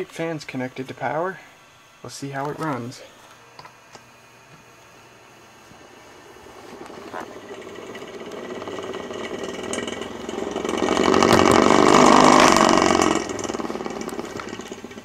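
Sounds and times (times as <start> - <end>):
fan blades rattling on desk: 6.4 - 15.0.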